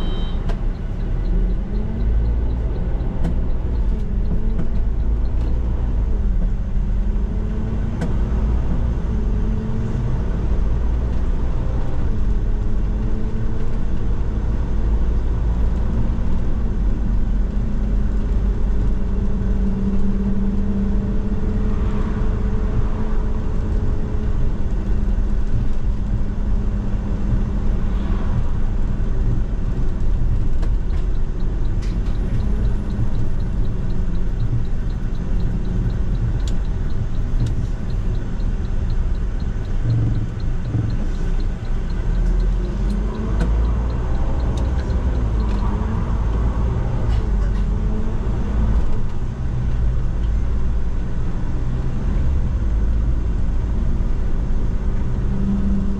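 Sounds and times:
bus engine running: 0.0s - 55.9s
road and air noise rumble: 0.0s - 55.9s
faint regular ticking: 0.1s - 6.6s, 29.1s - 50.5s.

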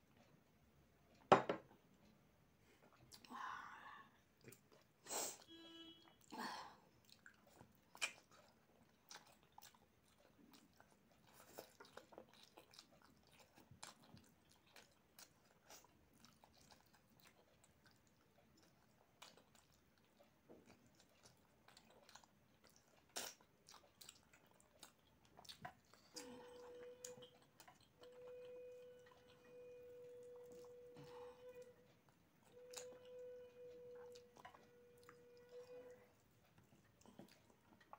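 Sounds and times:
chewing food: 0.0s - 37.9s.

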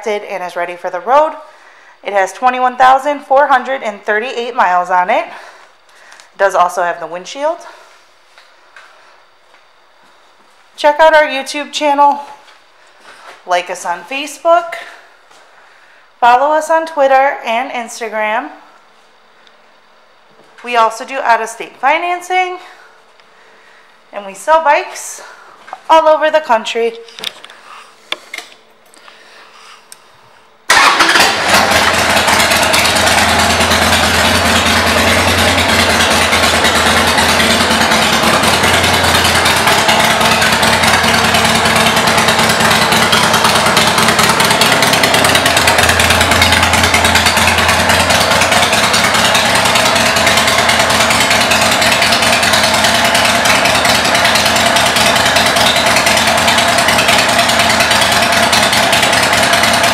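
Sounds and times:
motorcycle engine starting and idling: 30.7s - 59.9s.

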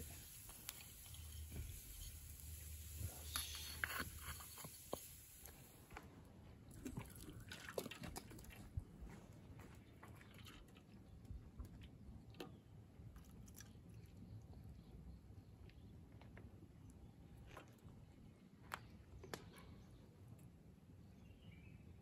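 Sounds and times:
coffee pouring through metal strainer: 0.0s - 5.6s.

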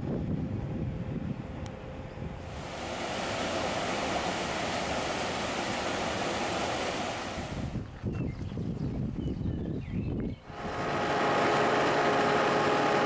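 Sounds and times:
wind rumble on microphone: 0.0s - 5.9s, 6.5s - 11.1s
water rushing through a channel: 2.4s - 7.8s.

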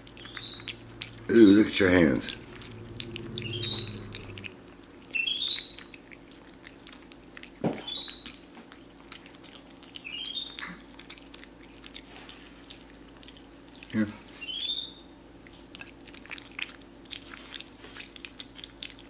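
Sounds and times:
monkey squeaking: 0.0s - 5.9s, 7.8s - 8.4s, 10.0s - 10.8s, 14.4s - 15.0s
monkey chewing and lip smacking: 0.0s - 19.0s.

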